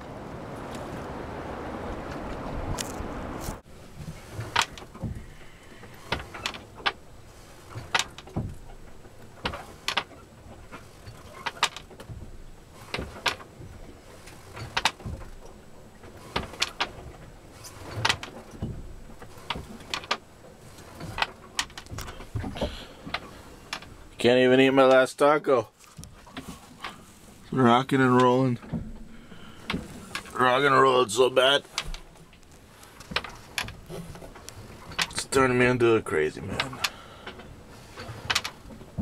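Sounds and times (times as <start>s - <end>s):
loose gear knocking and clattering: 4.0s - 24.0s, 31.6s - 39.0s.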